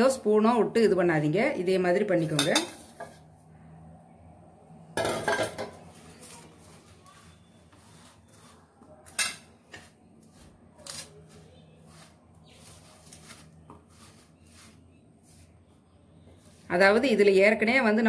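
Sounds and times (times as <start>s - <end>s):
hand rubbing food on steel plate: 6.0s - 9.2s, 9.8s - 17.2s.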